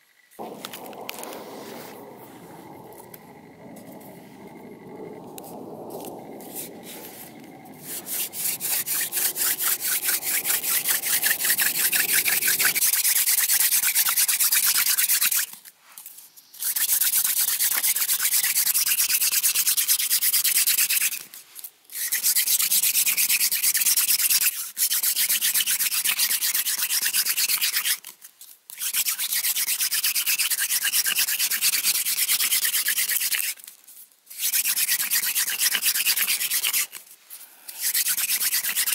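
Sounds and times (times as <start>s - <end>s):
hand drill grinding into wood: 6.5s - 13.3s.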